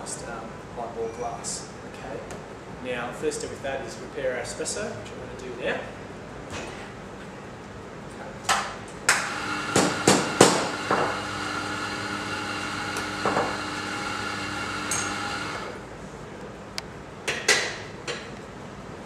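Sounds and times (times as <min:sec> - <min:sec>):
espresso machine motor whine: 0:09.2 - 0:15.8.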